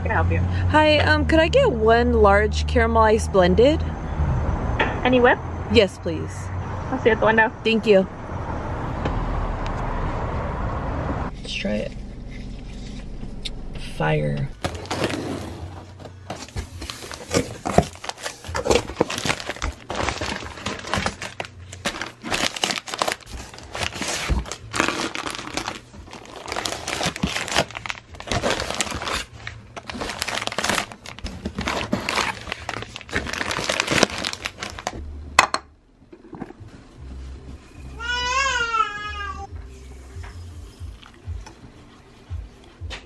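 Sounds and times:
plastic packs crinkling: 0:14.6 - 0:35.0.

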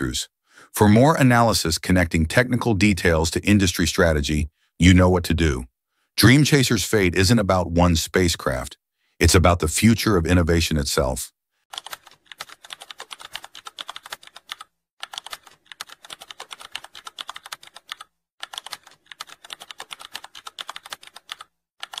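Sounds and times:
keyboard typing: 0:11.7 - 0:22.0.

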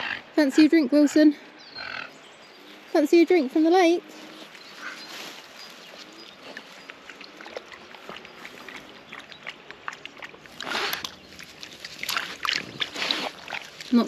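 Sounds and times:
dog lapping water: 0:06.5 - 0:14.0.

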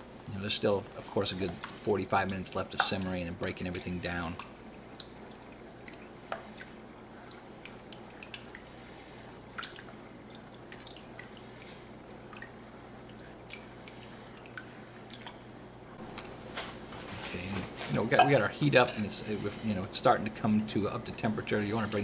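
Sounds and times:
liquid sloshing and dripping: 0:01.0 - 0:16.3.

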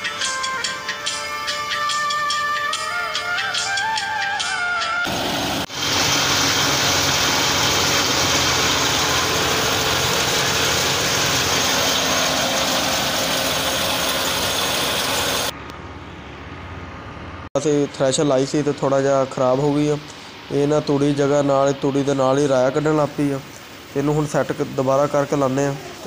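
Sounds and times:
tractor engine hum: 0:03.2 - 0:26.0
threshing machine din: 0:05.1 - 0:15.5.

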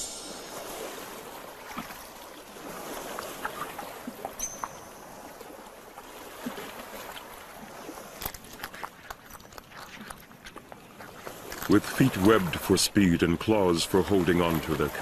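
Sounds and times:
stream water running over rocks: 0:00.0 - 0:15.0
small splashes and clicks: 0:06.0 - 0:12.5.

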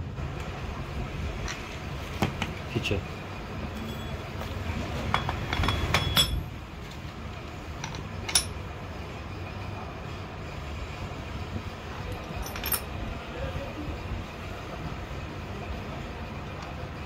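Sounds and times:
metal nut and washer clinking: 0:05.0 - 0:06.5, 0:07.8 - 0:08.6, 0:12.0 - 0:12.9.

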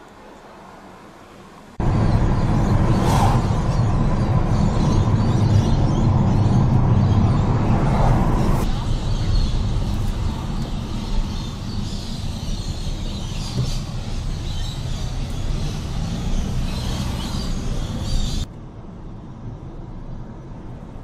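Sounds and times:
car and tyres rumbling: 0:00.2 - 0:21.0
birds chirping: 0:01.8 - 0:18.5.

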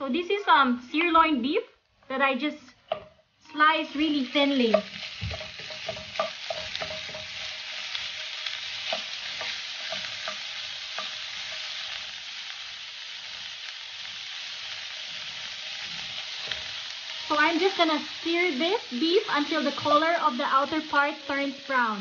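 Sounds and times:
wooden spoon knocking on pan: 0:02.9 - 0:03.2, 0:04.7 - 0:07.7, 0:08.8 - 0:11.6
meat sizzling in a frying pan: 0:03.0 - 0:22.0.

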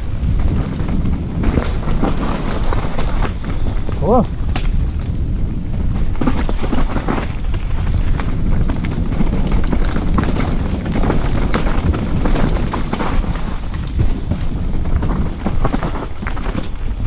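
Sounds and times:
bike knocks and rattles: 0:00.0 - 0:17.0
bike tyres rumbling over trail: 0:00.0 - 0:17.0
wind noise on microphone: 0:00.0 - 0:17.0.

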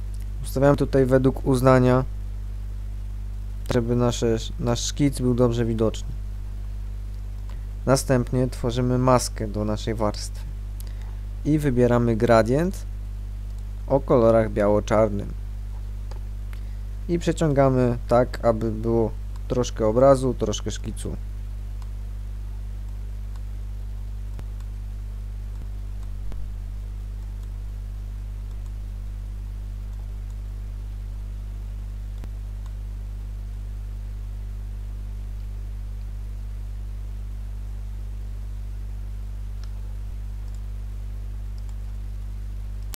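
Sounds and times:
electrical mains hum: 0:00.0 - 0:42.9
faint clicks: 0:13.5 - 0:13.7, 0:28.4 - 0:28.8, 0:40.4 - 0:40.7, 0:41.5 - 0:42.9.

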